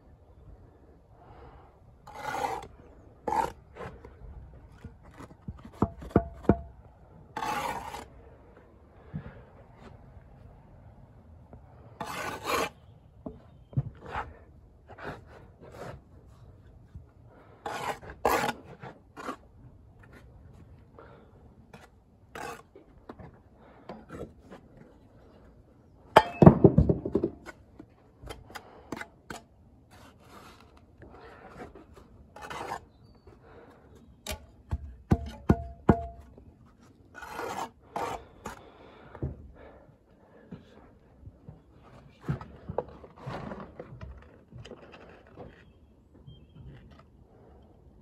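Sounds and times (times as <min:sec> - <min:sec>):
trowel scraping mortar and brick: 0:02.0 - 0:04.1, 0:07.4 - 0:08.2, 0:12.0 - 0:12.8, 0:17.6 - 0:20.3, 0:21.7 - 0:22.8, 0:28.3 - 0:33.1, 0:36.8 - 0:38.6.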